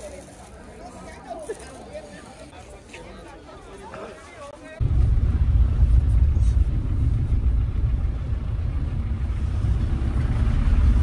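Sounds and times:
car engine and road rumble: 0:04.8 - 0:11.0.

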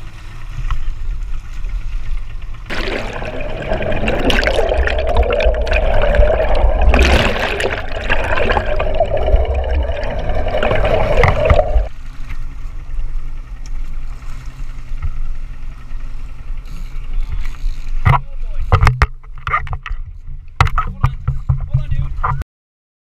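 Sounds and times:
muffled underwater rushing water: 0:00.0 - 0:15.8
water lapping against boat hull: 0:00.0 - 0:22.4
steady hum: 0:01.0 - 0:12.2.

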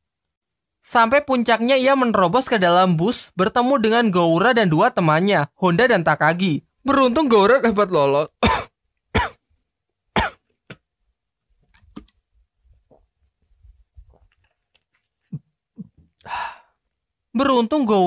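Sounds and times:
person clearing throat: 0:08.4 - 0:09.4, 0:10.2 - 0:10.4
person coughing: 0:08.4 - 0:09.4, 0:10.2 - 0:10.4.

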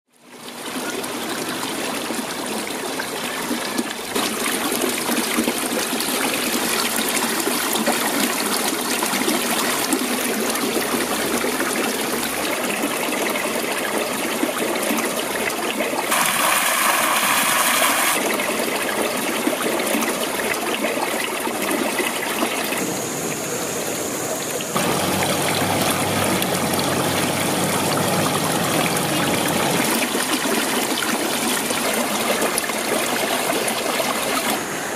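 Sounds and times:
water trickling and splashing: 0:00.1 - 0:34.9.

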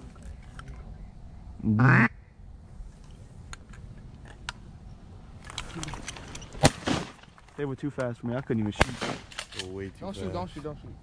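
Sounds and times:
duck quack: 0:01.7 - 0:02.2
shotgun shot: 0:06.6 - 0:07.2, 0:08.8 - 0:09.6.

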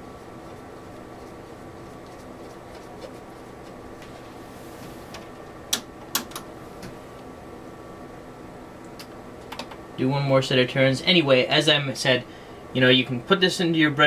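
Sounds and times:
low bench hum: 0:00.0 - 0:14.0
rotary switch clicks: 0:05.7 - 0:06.5.

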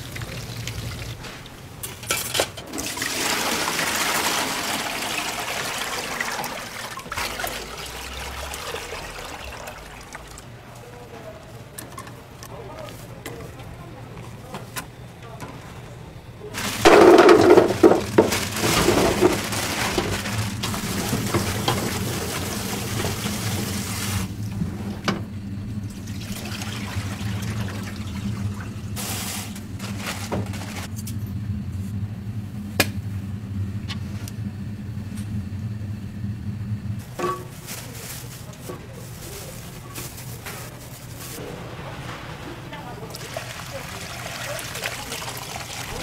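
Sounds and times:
water running into pot: 0:02.7 - 0:10.6, 0:16.6 - 0:24.5, 0:25.8 - 0:29.6, 0:42.8 - 0:46.0
steady low hum: 0:09.2 - 0:43.2
rice cakes tumbling into metal pot: 0:16.6 - 0:23.8.

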